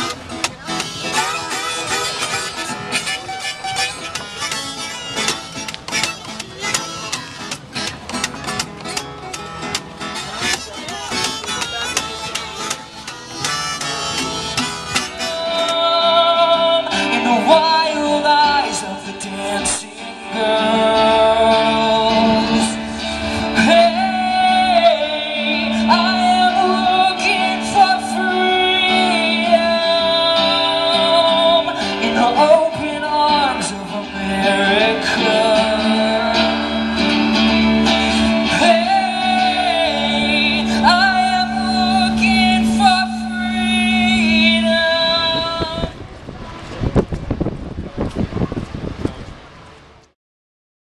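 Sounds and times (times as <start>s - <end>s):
strummed guitar: 0.0s - 49.4s
person singing: 10.4s - 46.0s.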